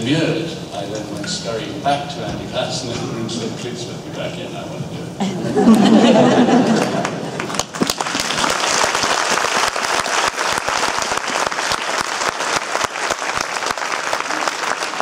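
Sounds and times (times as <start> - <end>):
audience applauding: 5.7 - 15.0.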